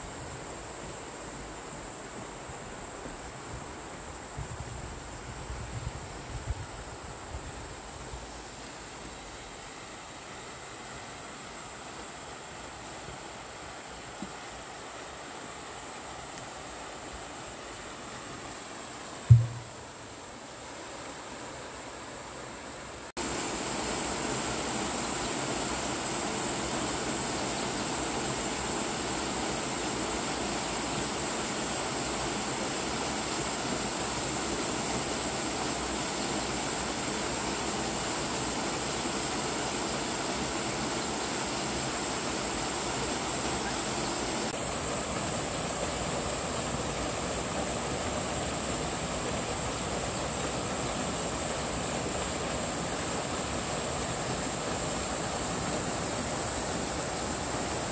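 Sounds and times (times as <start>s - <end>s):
waterfall splashing into pool: 19.2s - 19.8s, 23.1s - 57.9s.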